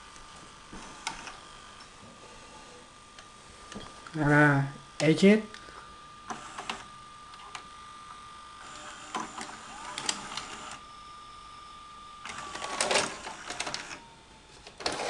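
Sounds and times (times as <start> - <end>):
tape player motor whine: 0.0 - 15.0
gears clicking and clattering: 12.3 - 13.9.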